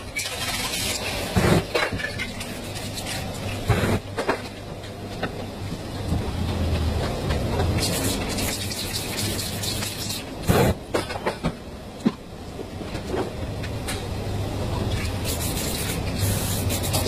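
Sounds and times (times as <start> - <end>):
low hum and rumble: 0.0 - 17.0
spray paint cans hissing: 7.8 - 10.7, 15.0 - 17.0.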